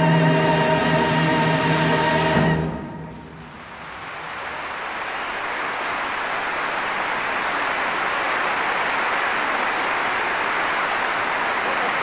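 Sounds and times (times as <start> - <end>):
audience applauding: 3.2 - 12.0.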